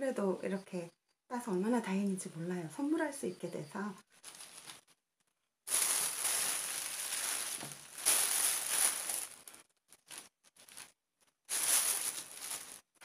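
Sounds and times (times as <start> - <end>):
plastic bag rustling: 4.1 - 5.0, 5.7 - 13.0.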